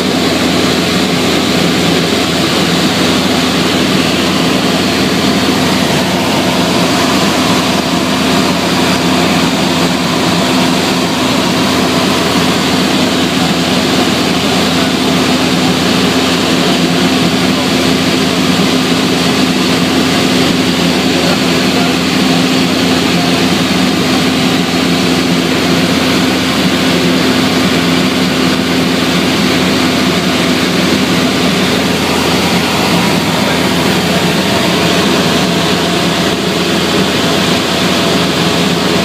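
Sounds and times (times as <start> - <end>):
propeller aircraft engine drone: 0.0 - 39.0
low hum: 26.5 - 38.9.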